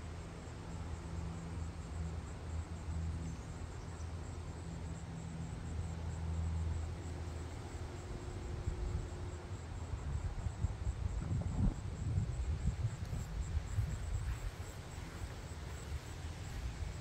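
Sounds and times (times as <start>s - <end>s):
faint insect chirping: 0.0s - 17.0s
steady low hum: 0.0s - 17.0s.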